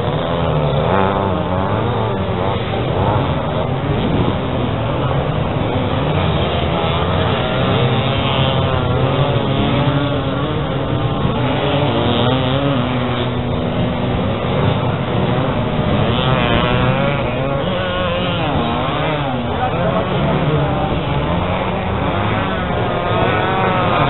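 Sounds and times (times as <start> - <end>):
motorcycle engines revving: 0.0 - 24.0.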